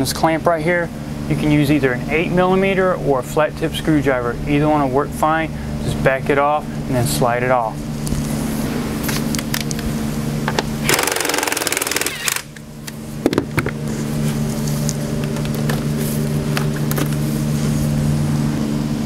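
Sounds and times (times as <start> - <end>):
low mechanical hum: 0.0 - 19.0
rapid mechanical buzzing: 7.7 - 19.0.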